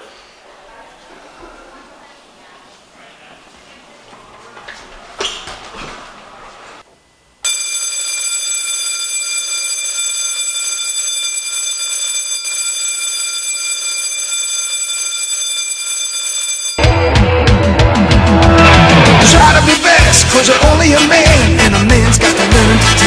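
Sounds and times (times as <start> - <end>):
electric bell ringing: 7.4 - 17.1.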